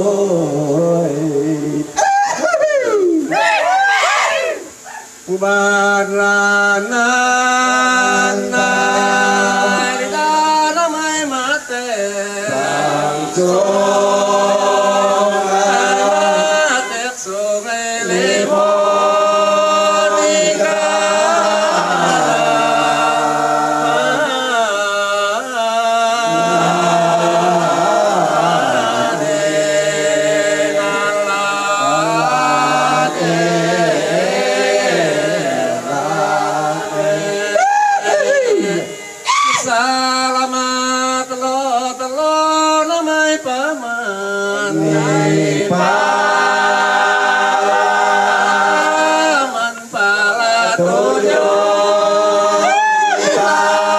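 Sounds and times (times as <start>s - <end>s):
group of voices chanting: 12.4s - 17.2s, 18.0s - 24.5s, 26.0s - 39.7s, 44.7s - 49.8s, 50.5s - 53.9s.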